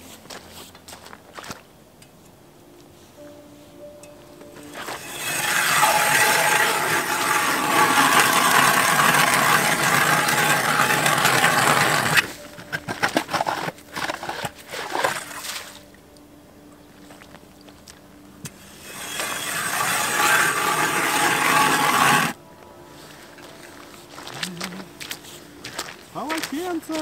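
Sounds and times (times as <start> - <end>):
ice auger grinding into ice: 4.7 - 15.7, 18.5 - 22.4.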